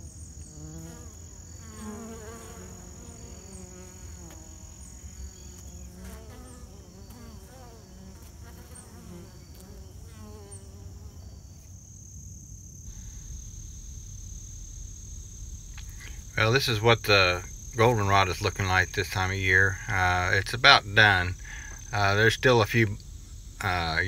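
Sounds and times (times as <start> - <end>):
honey bees buzzing: 0.0 - 11.5, 12.7 - 24.0
high insect trill: 0.0 - 24.0.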